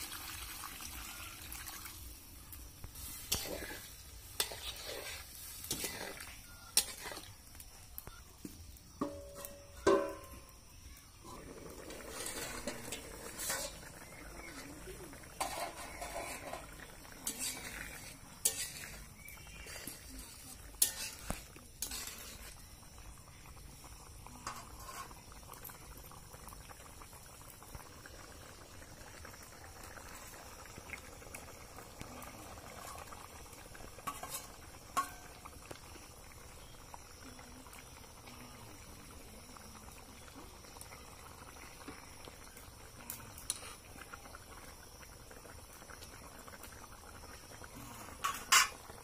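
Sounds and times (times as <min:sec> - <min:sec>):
curry bubbling in a pan: 0:00.0 - 0:49.0
metal spatula scraping pan: 0:03.1 - 0:07.3, 0:11.9 - 0:14.6, 0:15.3 - 0:19.0, 0:19.6 - 0:22.5, 0:24.4 - 0:25.2, 0:48.2 - 0:48.8.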